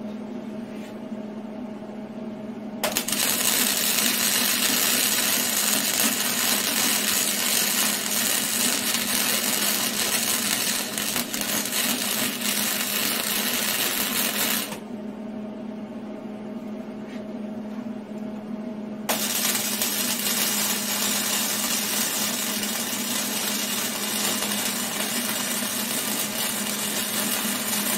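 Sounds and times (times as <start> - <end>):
welding arc crackling: 2.8 - 14.8, 19.1 - 27.9.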